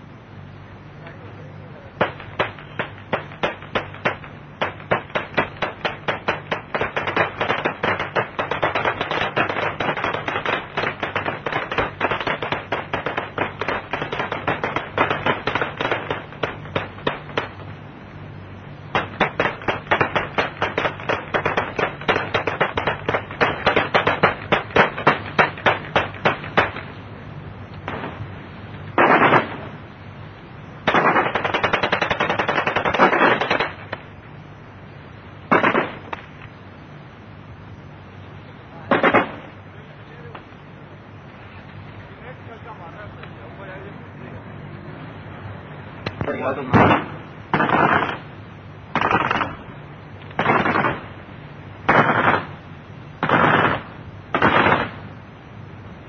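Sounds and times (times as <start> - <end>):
steady low hum: 0.0 - 56.0
rapid gunfire: 2.0 - 17.6, 18.9 - 26.8, 29.0 - 29.7, 30.9 - 33.8, 35.5 - 36.2, 38.9 - 39.5, 46.7 - 48.2, 49.0 - 49.6, 50.4 - 51.1, 51.9 - 52.6, 53.2 - 55.0.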